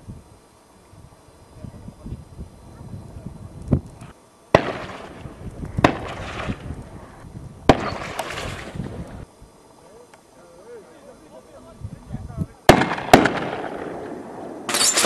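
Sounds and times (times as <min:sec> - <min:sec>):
rifle gunshots with echo: 0:04.5 - 0:05.1, 0:12.7 - 0:15.0.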